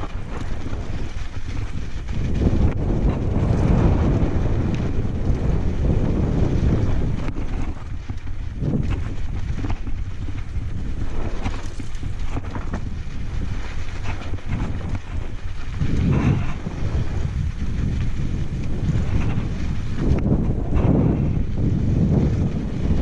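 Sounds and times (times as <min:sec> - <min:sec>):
tyres rumbling on gravel: 0:00.0 - 0:23.0
wind rushing over microphone: 0:00.0 - 0:23.0
bike clattering over stones: 0:06.1 - 0:20.8.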